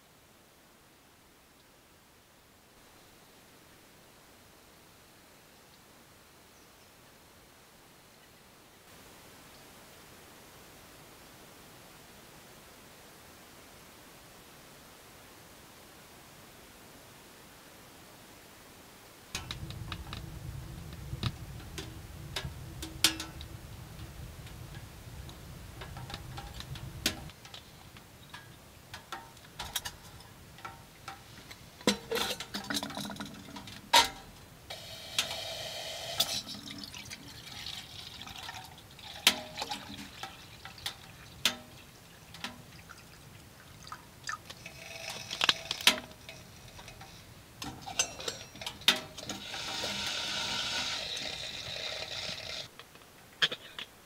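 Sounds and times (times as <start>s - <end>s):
water on stovetop: 19.3s - 52.8s
wood fire crackling in stove: 19.3s - 53.3s.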